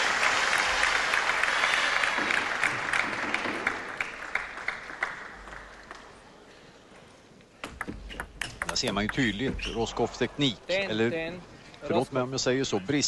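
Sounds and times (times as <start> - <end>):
spectators clapping: 0.0 - 6.3.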